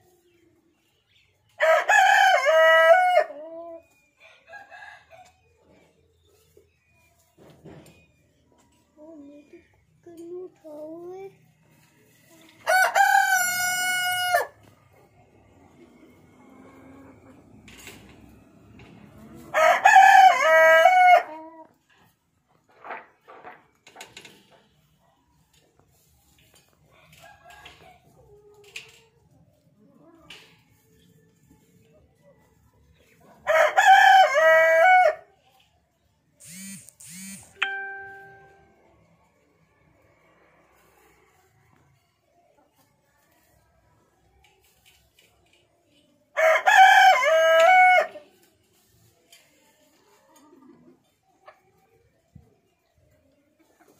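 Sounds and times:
hens clucking: 11.6s - 23.2s, 46.7s - 52.5s
rooster crowing: 12.6s - 14.6s, 19.5s - 21.3s, 33.5s - 35.2s, 46.4s - 48.2s.

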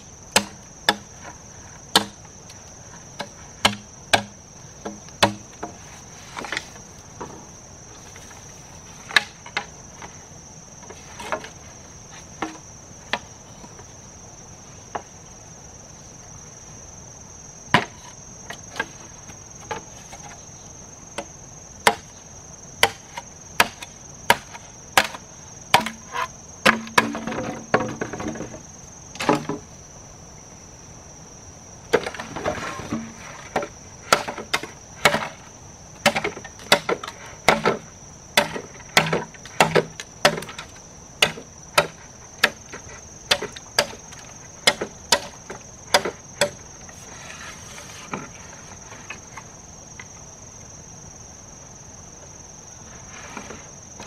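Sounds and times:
insect drone: 0.0s - 54.0s
tool striking wood: 3.6s - 5.4s.

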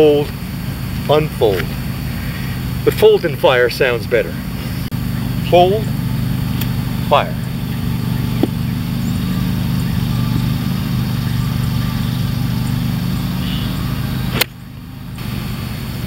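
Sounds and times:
low mechanical hum: 0.0s - 16.0s
golf club striking ball: 5.9s - 11.3s, 14.3s - 14.7s.

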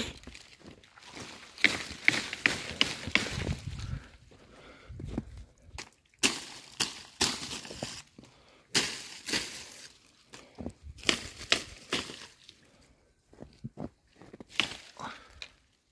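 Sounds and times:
footsteps crunching in snow: 6.3s - 12.5s, 13.3s - 14.9s.

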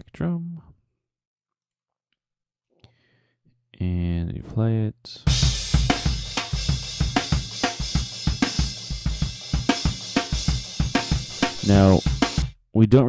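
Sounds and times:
cymbals washing: 5.3s - 12.5s
acoustic drum beat: 5.3s - 12.6s.

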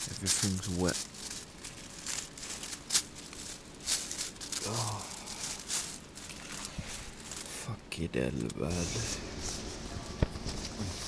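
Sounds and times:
tent fabric rustling: 0.0s - 7.7s
person grunting: 4.6s - 5.5s.

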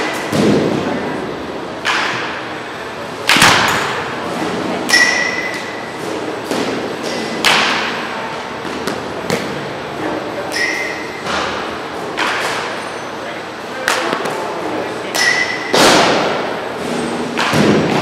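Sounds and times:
bat hitting balls: 1.8s - 2.5s, 3.2s - 8.0s, 15.1s - 18.0s.

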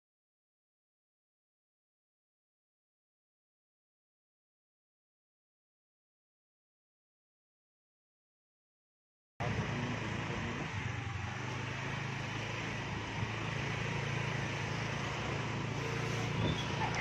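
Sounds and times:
street traffic noise: 9.4s - 17.0s
vehicle engine humming: 9.4s - 17.0s.

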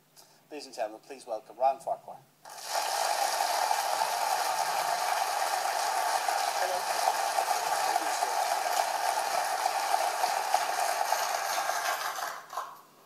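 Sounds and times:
audience applauding: 2.5s - 12.8s.

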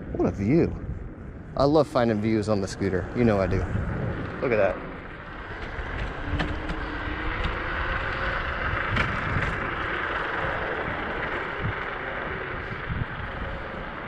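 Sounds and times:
wind noise on microphone: 0.0s - 14.0s.

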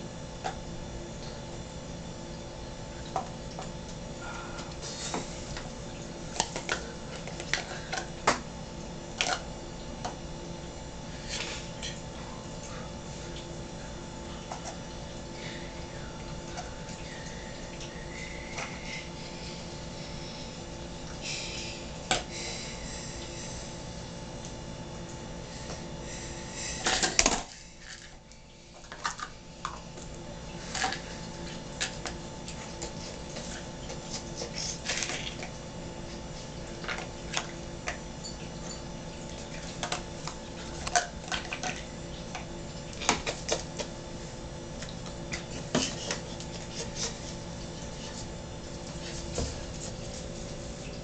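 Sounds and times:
faint steady hum: 0.0s - 51.0s.

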